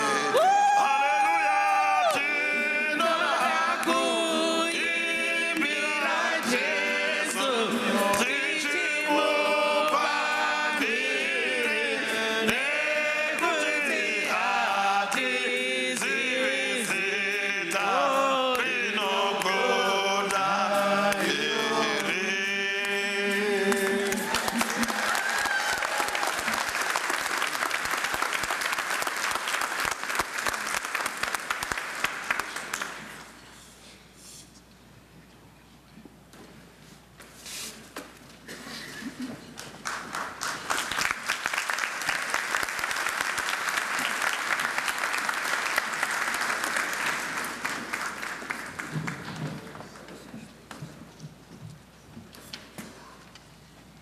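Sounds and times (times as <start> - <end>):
group singing a worship song: 0.0 - 25.1
audience applauding: 23.7 - 33.3, 39.4 - 50.1.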